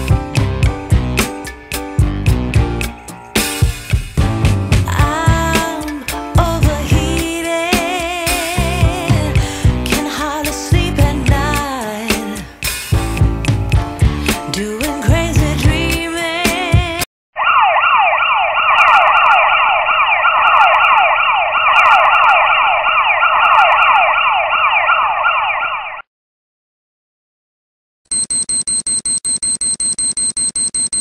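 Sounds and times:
siren alarm wail: 0:02.7 - 0:04.2, 0:17.4 - 0:26.0
fast high-pitched electronic beeping: 0:28.1 - 0:31.0.

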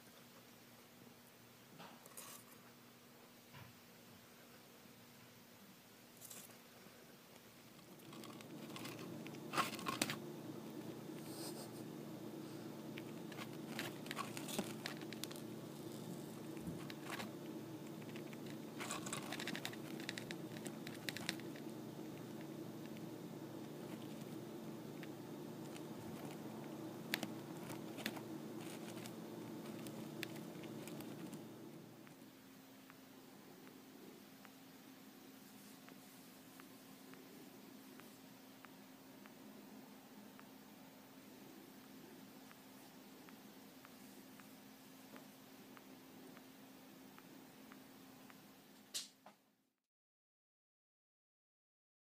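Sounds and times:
faint low hum: 0:00.0 - 0:49.8
hamster crunching seeds: 0:02.0 - 0:02.6, 0:06.2 - 0:06.6, 0:07.4 - 0:33.0.

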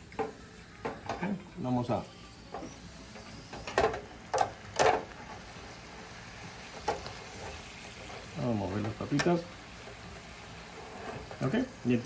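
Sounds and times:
chips sizzling in deep fryer: 0:00.0 - 0:12.0
metal clicks of fry basket: 0:03.6 - 0:05.1, 0:08.8 - 0:09.4.

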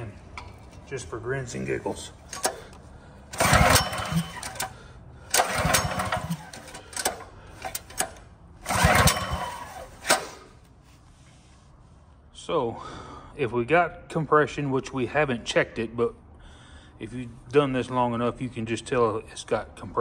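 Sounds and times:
recoil starter cranking engine: 0:02.2 - 0:10.6.

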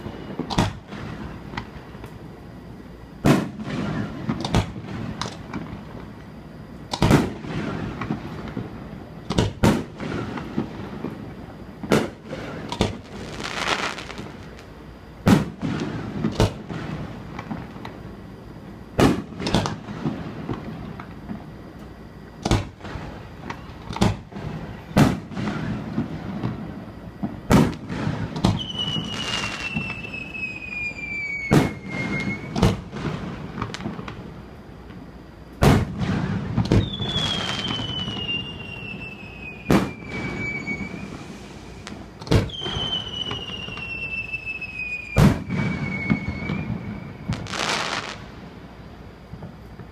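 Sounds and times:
whistling firework shell: 0:00.0 - 0:02.1, 0:03.2 - 0:05.7, 0:22.4 - 0:34.2, 0:35.6 - 0:48.3
fireworks bursting with sharp bangs: 0:00.0 - 0:49.9.

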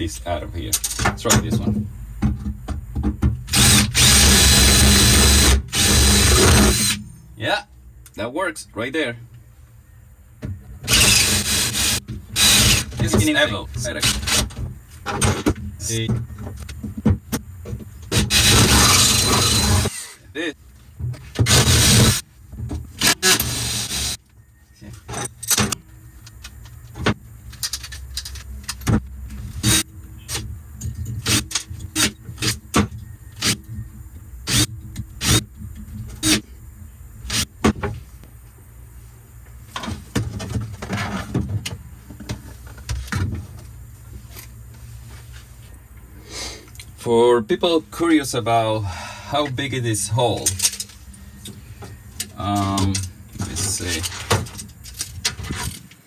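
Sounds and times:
sharp metallic clicks and knocks: 0:00.6 - 0:03.9
power drill whirring: 0:03.5 - 0:07.0, 0:10.9 - 0:13.0, 0:18.1 - 0:20.2, 0:21.5 - 0:22.2, 0:23.0 - 0:24.2, 0:34.5 - 0:35.4.

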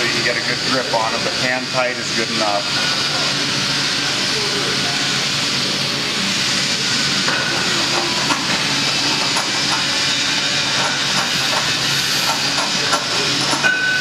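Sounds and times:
loud workshop hissing: 0:00.0 - 0:14.0.

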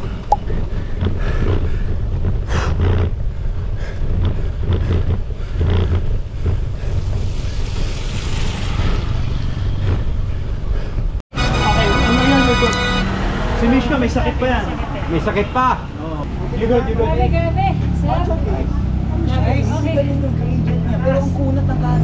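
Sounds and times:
person breathing heavily: 0:00.0 - 0:11.2
wind rumble on microphone: 0:00.0 - 0:11.2.

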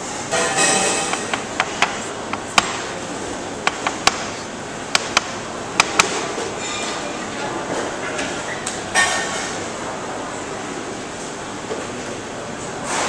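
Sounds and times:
kitchen room noise: 0:00.0 - 0:13.0
kitchen utensils tapping: 0:00.3 - 0:02.8.

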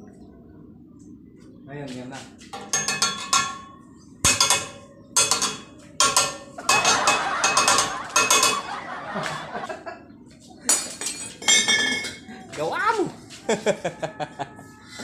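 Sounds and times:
steel pipes clanking: 0:02.6 - 0:08.7.

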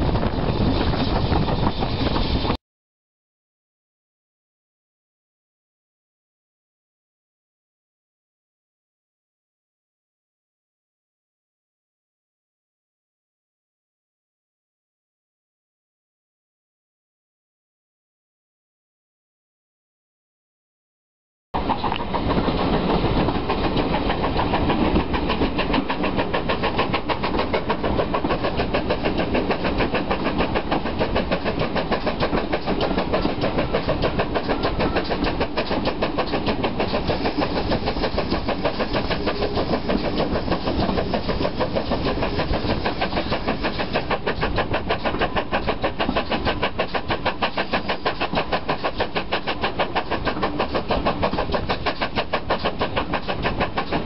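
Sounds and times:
steam engine exhaust beats: 0:21.8 - 0:54.0.

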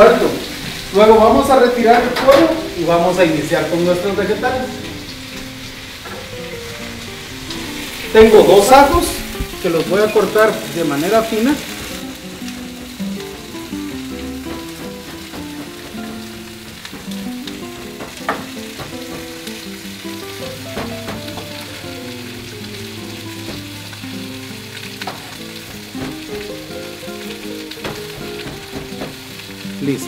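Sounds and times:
chicken sizzling in a pan: 0:00.0 - 0:30.0
soft background music: 0:00.0 - 0:30.0.

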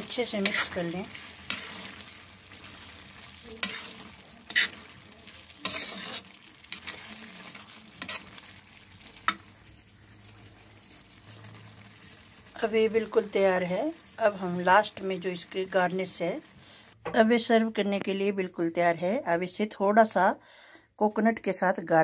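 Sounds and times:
metal spatula scraping a pan: 0:00.0 - 0:12.5
soft frying: 0:00.0 - 0:19.0.

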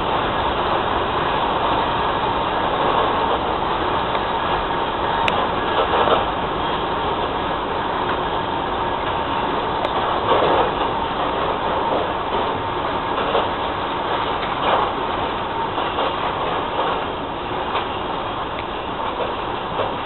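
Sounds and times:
train wheels rumbling on rails: 0:00.0 - 0:20.0
wheels clattering over rail joints: 0:02.0 - 0:20.0.

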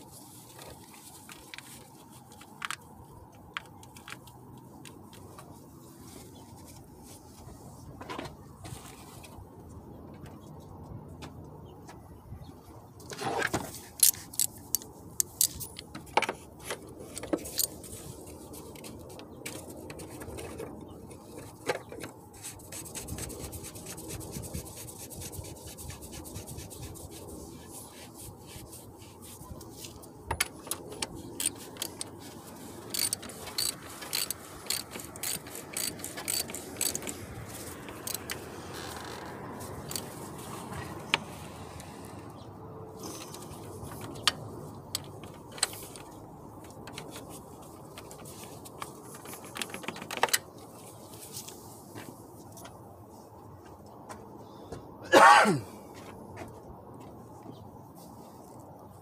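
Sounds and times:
metal tools clicking and tapping: 0:14.0 - 0:17.8, 0:32.9 - 0:37.3, 0:37.9 - 0:38.4
socket ratchet clicking: 0:32.9 - 0:37.3, 0:37.9 - 0:39.0.

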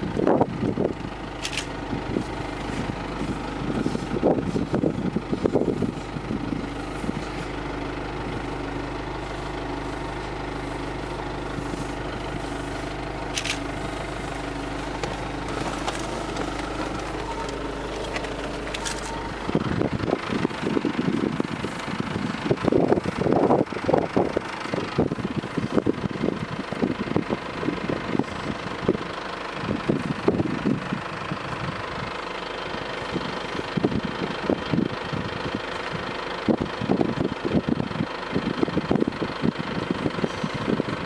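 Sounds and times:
vehicle engine idling: 0:00.0 - 0:41.0
microphone handling noise: 0:00.2 - 0:07.7, 0:10.6 - 0:24.1.

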